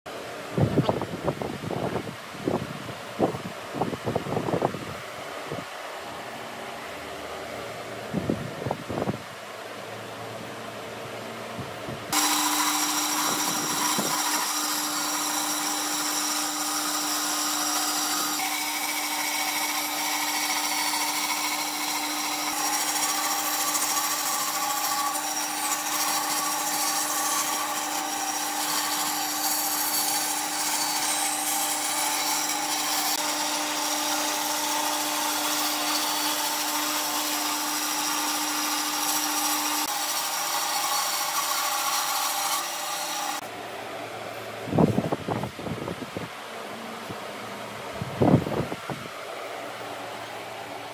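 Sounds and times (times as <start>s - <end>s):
bandsaw cutting wood: 12.1s - 43.4s.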